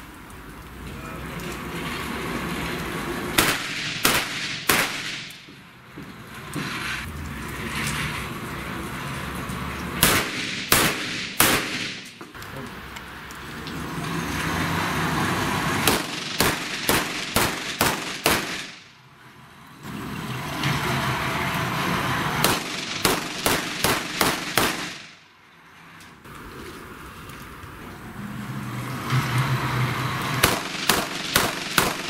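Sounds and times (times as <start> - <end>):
steady background noise: 0.0 - 32.0
handgun shots: 3.4 - 5.3, 10.0 - 12.2, 15.9 - 18.8, 22.4 - 25.0.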